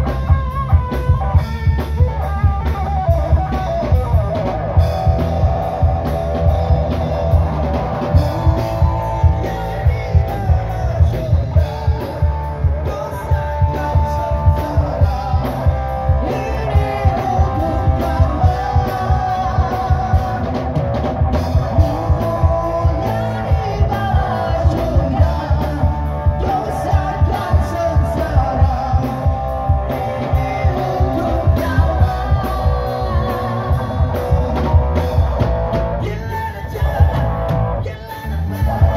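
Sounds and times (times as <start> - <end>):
drum kit beat: 0.0 - 37.8
electric guitars: 0.0 - 38.9
man singing: 0.0 - 38.9
woman singing: 29.9 - 34.8.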